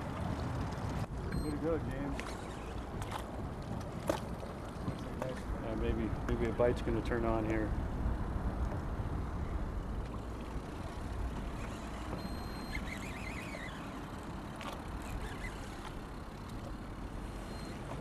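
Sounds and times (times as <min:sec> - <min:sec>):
boat motor rumble: 0:00.0 - 0:18.0
wind: 0:00.0 - 0:18.0
high warbling chirp: 0:12.3 - 0:14.0.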